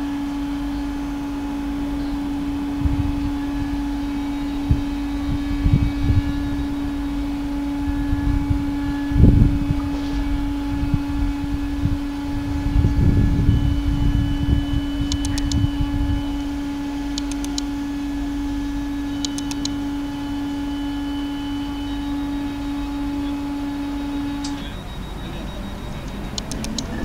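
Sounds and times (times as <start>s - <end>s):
locomotive engine droning: 0.0s - 27.0s
short high clicks: 15.1s - 15.6s, 17.2s - 17.7s, 19.2s - 19.8s, 26.1s - 27.0s.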